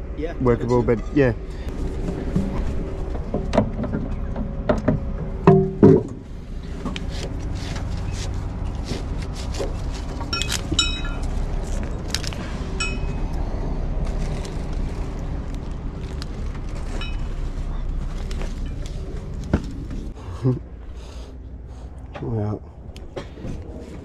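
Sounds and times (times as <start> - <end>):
metal gear clanking: 10.1 - 11.8
ringing metallic notes: 10.3 - 11.3, 12.8 - 13.3, 16.9 - 17.4
metal clicks and clinks: 10.3 - 11.4.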